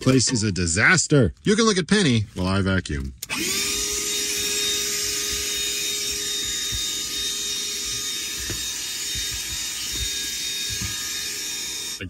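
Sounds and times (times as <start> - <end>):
vacuum cleaner running: 3.2 - 12.0.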